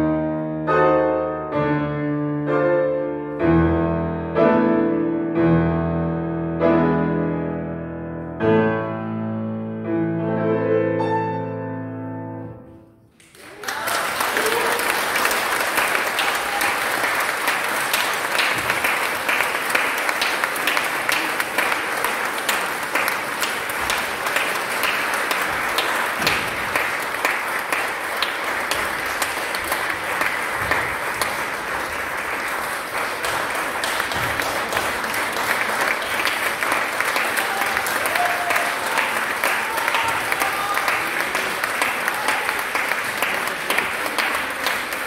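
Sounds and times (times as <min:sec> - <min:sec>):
audience applauding: 0:13.2 - 0:45.0.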